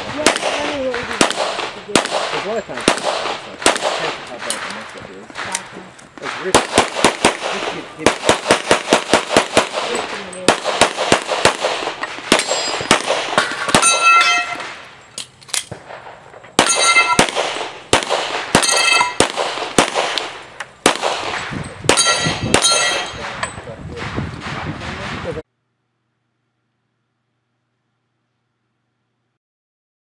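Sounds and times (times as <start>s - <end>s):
rapid pistol fire: 0.0s - 5.6s, 6.2s - 14.0s, 15.7s - 23.4s
steel targets ringing: 12.4s - 14.8s, 16.6s - 17.3s, 18.6s - 19.2s, 21.9s - 23.6s.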